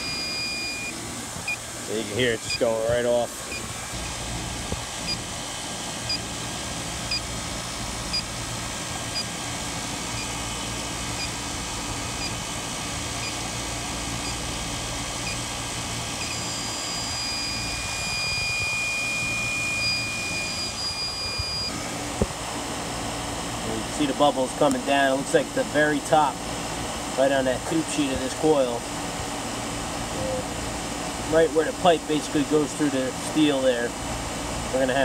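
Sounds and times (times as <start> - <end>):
continuous high alarm tone: 0.0 - 1.6, 15.2 - 21.7
leak detector beeping: 0.0 - 1.6, 2.3 - 4.3, 5.0 - 5.4, 6.0 - 6.4, 7.0 - 7.4, 8.0 - 8.4, 9.0 - 9.4, 10.0 - 21.8
air conditioning units humming: 0.0 - 35.0.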